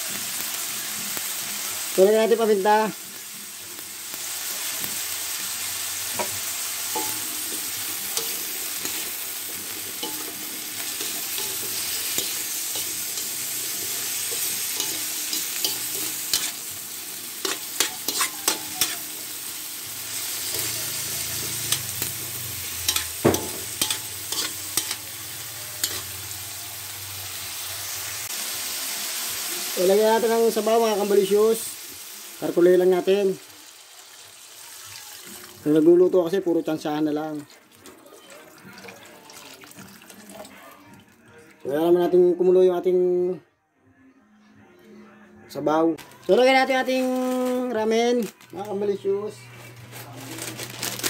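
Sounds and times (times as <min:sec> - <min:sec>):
vegetables sizzling in oil: 0:00.0 - 0:40.4, 0:46.0 - 0:51.0
spatula scraping wok: 0:06.0 - 0:28.1.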